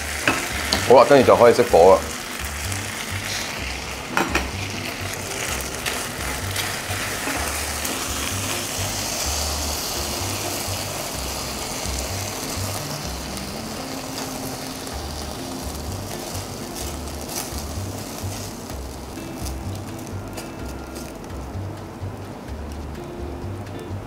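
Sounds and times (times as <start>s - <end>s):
background music with bass: 0.0s - 24.0s
plate clacking on metal counter: 4.1s - 4.6s.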